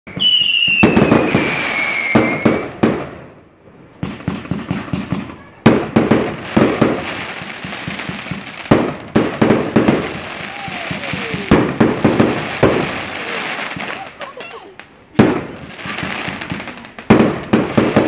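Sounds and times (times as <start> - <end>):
firework whistle falling in pitch: 0.1 - 2.8
fireworks bangs and crackles: 0.1 - 18.0.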